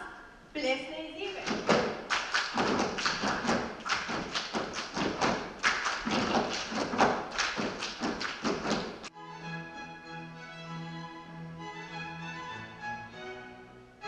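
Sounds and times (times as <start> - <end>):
feet thumping on wooden stage: 1.4 - 9.1
music with violin: 9.1 - 14.0.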